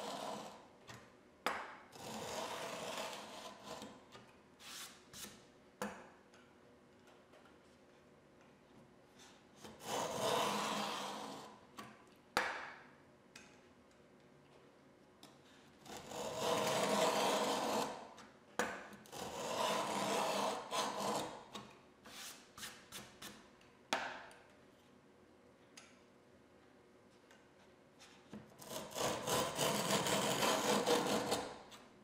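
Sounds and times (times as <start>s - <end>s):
router plane scraping wood: 0.0s - 0.6s, 2.0s - 4.0s, 9.7s - 11.6s, 15.9s - 18.0s, 19.1s - 21.4s, 28.6s - 31.8s.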